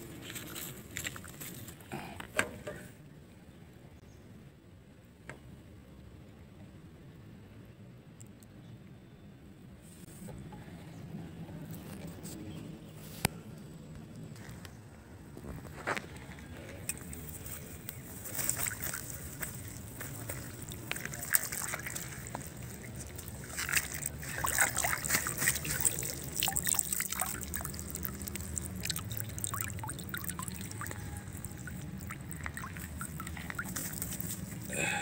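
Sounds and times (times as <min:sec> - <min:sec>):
water splashing and trickling: 0:00.0 - 0:01.8, 0:16.8 - 0:35.0
low steady hum: 0:16.2 - 0:35.0.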